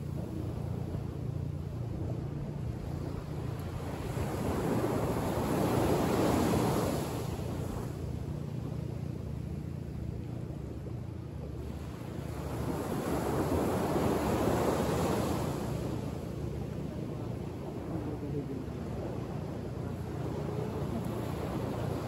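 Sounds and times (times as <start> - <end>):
small waves breaking on beach: 1.9 - 8.8, 11.5 - 22.0.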